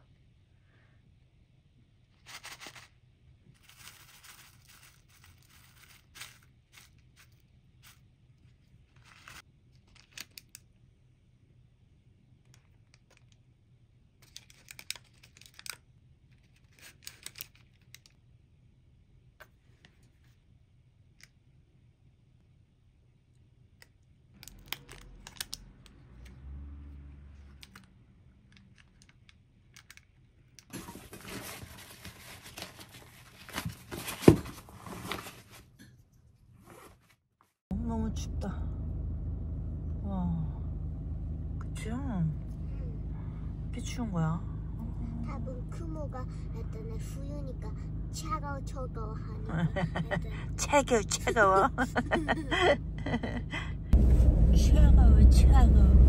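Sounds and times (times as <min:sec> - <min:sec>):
packaging rustling and tearing: 0:03.6 - 0:08.0, 0:08.9 - 0:10.5, 0:16.5 - 0:18.1, 0:30.7 - 0:35.6.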